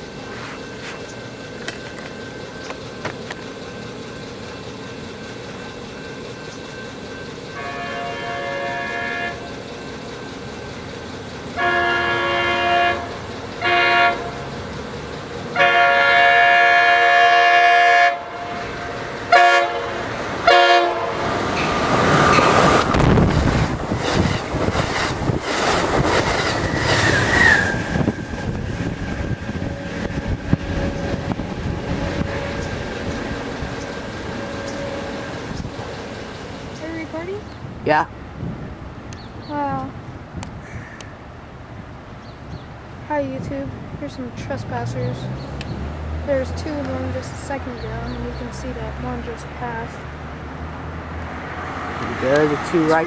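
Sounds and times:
train wheels clattering on rails: 0.0 - 16.5, 18.4 - 37.6
train air horn blasts: 7.5 - 9.5, 11.6 - 14.5, 15.6 - 21.4, 27.1 - 33.4, 34.2 - 35.6.

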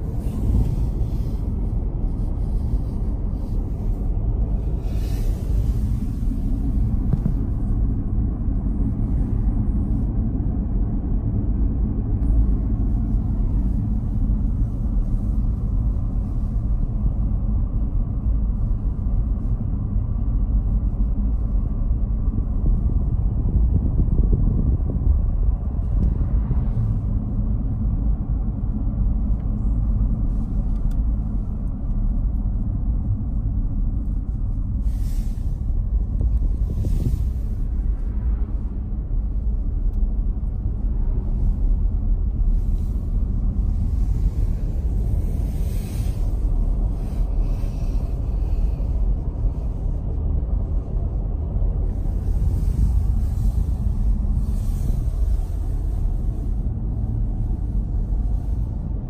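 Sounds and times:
car cabin road rumble: 0.0 - 59.0.

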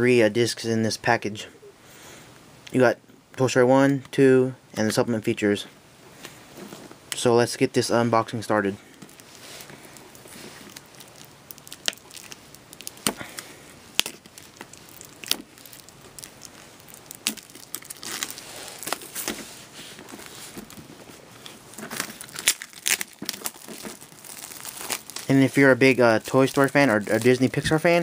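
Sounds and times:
plastic wrapping crinkling: 8.9 - 28.0.

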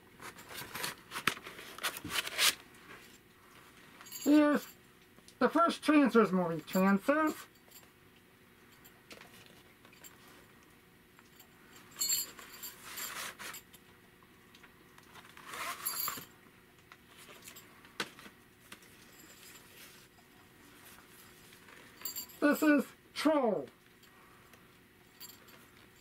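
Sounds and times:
cassette sliding in cardboard sleeve: 0.3 - 2.6.

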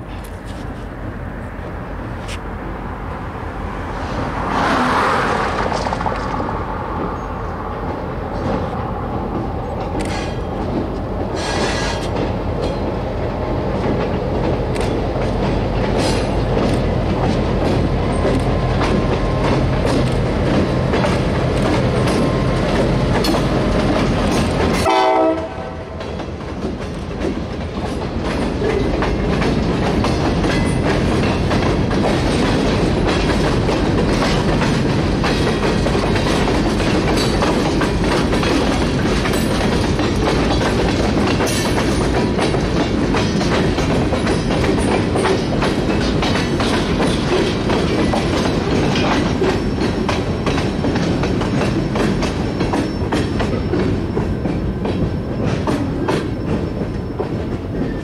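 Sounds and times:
diesel locomotive passing: 0.0 - 58.0
wheels clacking over rail joints: 3.7 - 58.0
train horn: 24.7 - 26.2.

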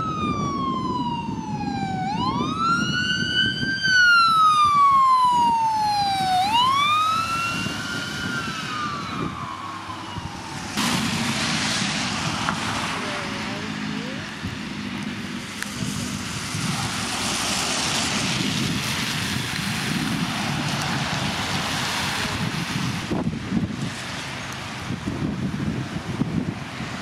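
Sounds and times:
ambulance siren wailing: 0.0 - 14.4
low road rumble: 0.0 - 27.0
steady rush of noise: 4.7 - 27.0.

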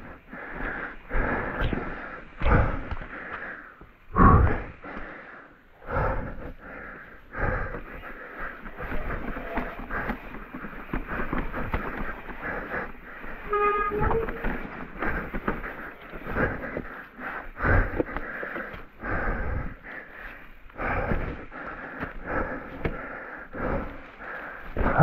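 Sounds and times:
tyre noise: 7.4 - 25.0
bike rattling and knocking: 7.7 - 19.7.

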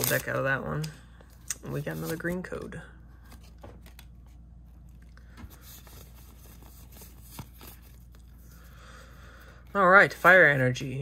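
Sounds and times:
cards rustling: 0.0 - 8.8.

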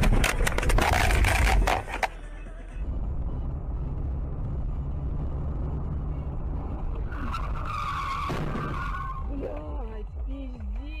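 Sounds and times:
road and engine rumble: 0.0 - 11.0
car tyres screeching: 6.1 - 9.6.

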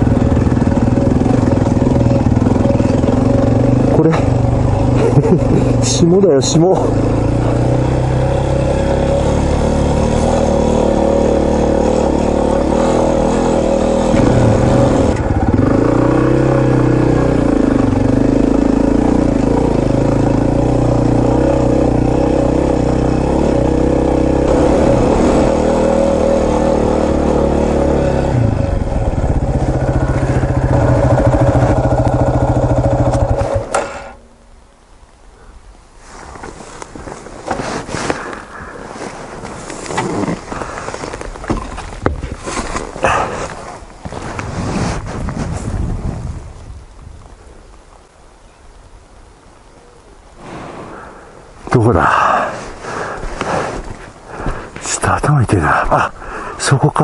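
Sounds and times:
motorcycle engine running: 0.0 - 34.4.

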